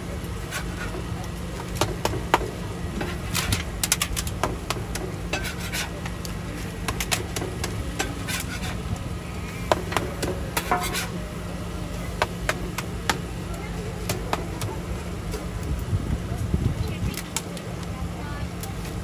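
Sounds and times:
steady low hum: 0:00.0 - 0:19.0
metal spatulas scraping griddle: 0:00.4 - 0:01.1, 0:01.7 - 0:11.2.

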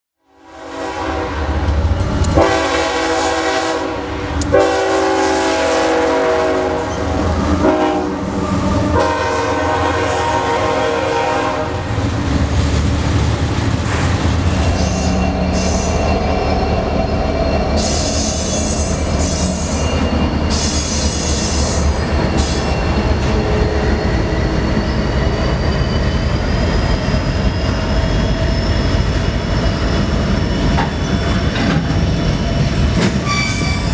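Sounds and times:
locomotive air horn: 0:00.4 - 0:01.6, 0:02.4 - 0:11.9.

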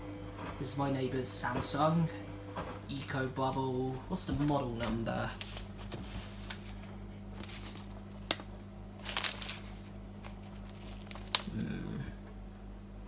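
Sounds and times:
washing machine humming: 0:00.0 - 0:13.0
paper crinkling and rustling: 0:05.3 - 0:11.7.

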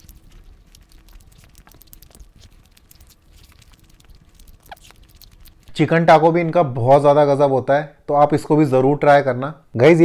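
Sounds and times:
close chewing with wet mouth clicks: 0:00.0 - 0:05.8.

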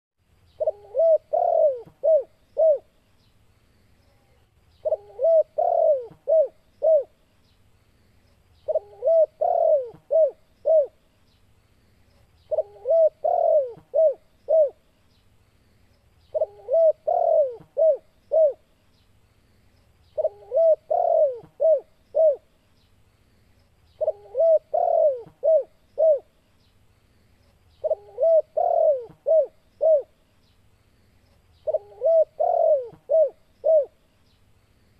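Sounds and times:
dove cooing: 0:00.6 - 0:02.9, 0:04.8 - 0:07.2, 0:08.6 - 0:11.0, 0:12.5 - 0:14.8, 0:16.3 - 0:18.7, 0:20.2 - 0:22.5, 0:24.0 - 0:26.3, 0:27.8 - 0:30.2, 0:31.6 - 0:34.0.

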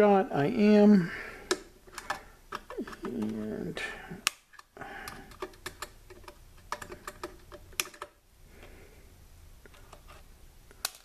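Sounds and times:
cutters clicking and tapping: 0:01.4 - 0:03.5, 0:04.2 - 0:08.2.

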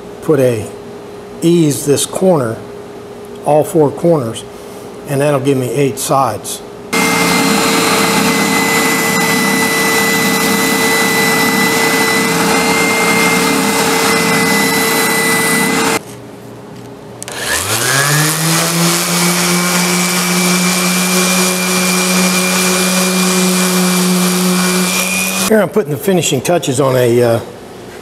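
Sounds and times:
orbital sander running: 0:07.0 - 0:16.0, 0:17.3 - 0:25.5
spindle sander sanding wood: 0:07.0 - 0:16.0, 0:17.3 - 0:25.5.

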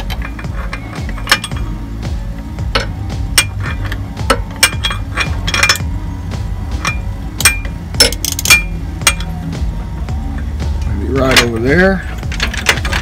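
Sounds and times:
metal tools clinking: 0:00.0 - 0:01.8, 0:04.6 - 0:05.9
steady low hum: 0:00.0 - 0:13.0.

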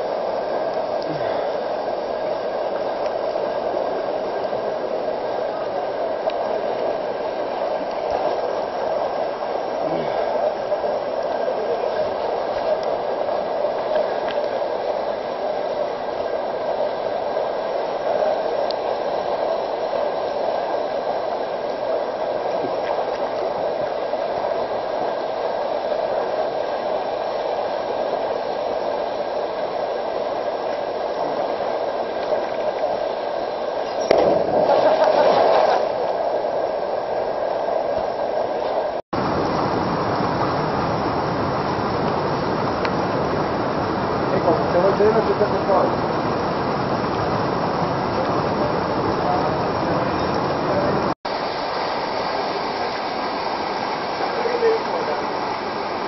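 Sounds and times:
small waterfall rushing: 0:00.0 - 0:56.0
person jumping into water: 0:34.0 - 0:36.1.

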